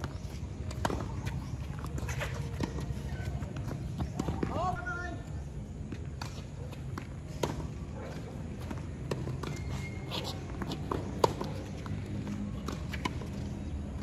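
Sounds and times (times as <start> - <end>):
footsteps scuffing: 0.0 - 4.6, 9.5 - 13.1
ball bouncing on court: 0.0 - 4.9, 8.6 - 13.5
tennis ball struck by rackets: 0.7 - 1.5, 6.2 - 7.8, 10.2 - 11.7.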